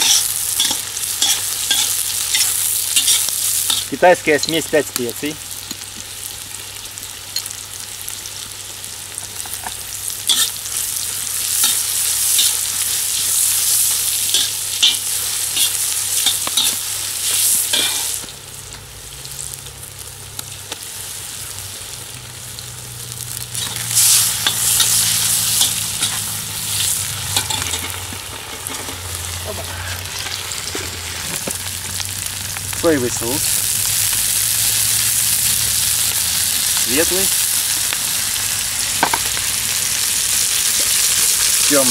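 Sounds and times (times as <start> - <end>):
metal skimmer scraping a wok: 0.0 - 4.0, 10.3 - 10.6, 14.2 - 18.2, 23.5 - 31.5
food sizzling in a wok: 0.0 - 41.9.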